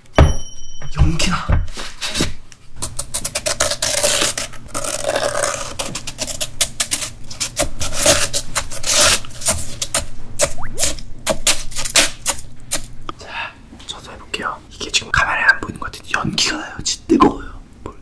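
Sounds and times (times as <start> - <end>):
chopsticks scraping ice: 3.3 - 9.9.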